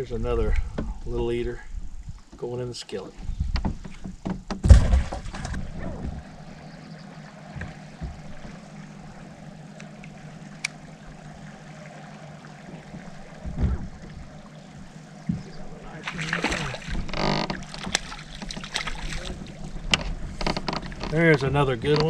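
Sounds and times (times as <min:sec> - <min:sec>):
loud thump: 0:03.5 - 0:06.2
low electric hum: 0:04.6 - 0:21.9.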